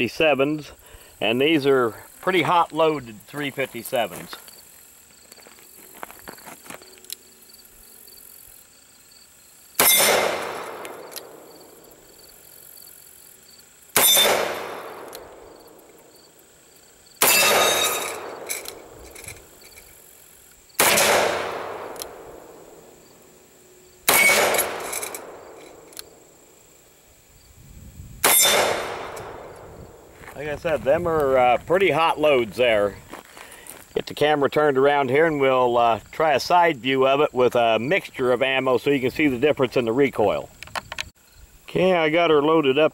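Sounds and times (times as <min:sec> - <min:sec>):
revolver gunshots echoing: 0:09.8 - 0:11.8, 0:14.0 - 0:15.6, 0:17.2 - 0:18.9, 0:20.8 - 0:22.8, 0:24.1 - 0:25.9, 0:28.2 - 0:29.6.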